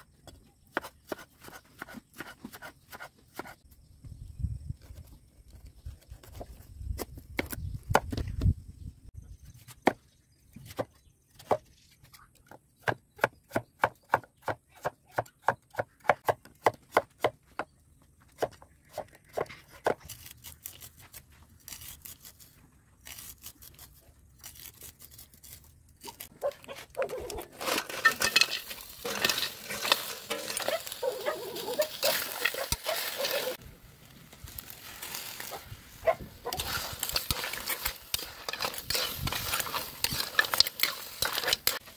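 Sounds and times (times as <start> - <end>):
scraping clatter: 27.3 - 30.9.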